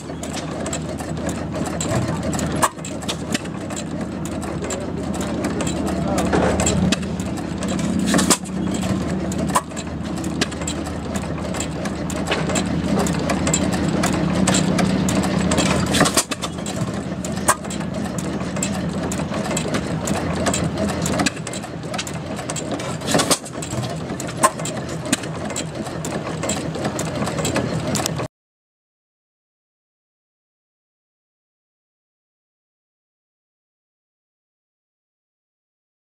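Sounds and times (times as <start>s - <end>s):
stationary gas engines popping: 0.0s - 28.3s
steady engine hum: 0.0s - 28.3s.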